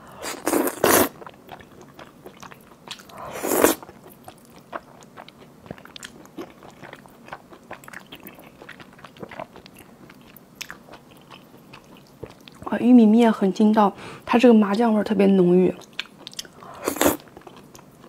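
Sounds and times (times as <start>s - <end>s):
person slurping noodles: 0.2s - 1.2s, 3.2s - 3.9s, 16.7s - 17.2s.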